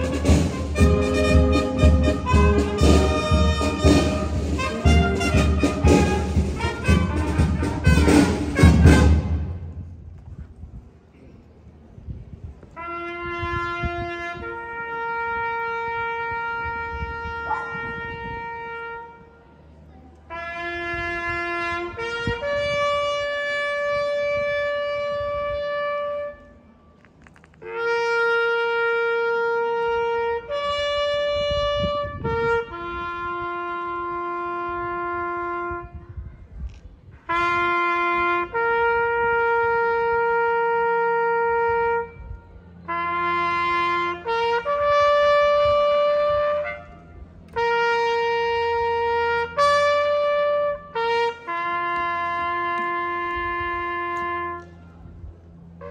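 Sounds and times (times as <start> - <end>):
solo trumpet call: 0.0 - 9.6, 12.7 - 19.6, 20.3 - 26.6, 27.6 - 36.1, 37.2 - 55.0.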